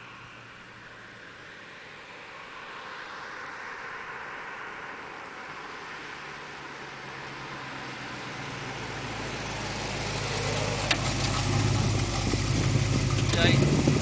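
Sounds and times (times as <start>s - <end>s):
car engine running: 7.2s - 14.0s.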